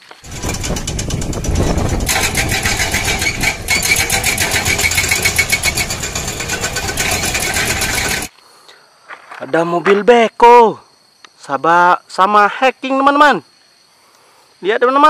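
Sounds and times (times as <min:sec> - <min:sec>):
diesel engine running: 0:00.2 - 0:08.3
hydraulic breaker hammering rubble: 0:00.3 - 0:08.3.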